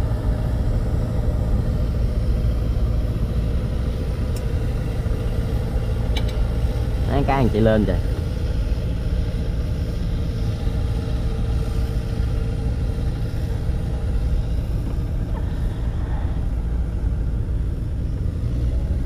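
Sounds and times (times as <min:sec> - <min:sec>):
faint hum: 0:00.0 - 0:19.0
low engine rumble: 0:00.0 - 0:19.0.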